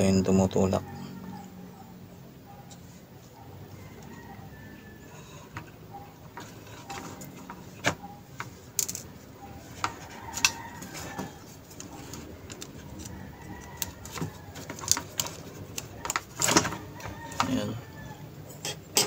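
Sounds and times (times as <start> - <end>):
small plastic and metal parts clicking: 8.4 - 9.1.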